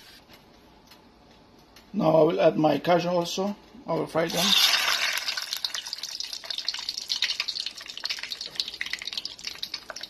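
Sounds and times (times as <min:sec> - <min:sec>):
nuts deep-frying in hot oil: 0:04.1 - 0:10.0.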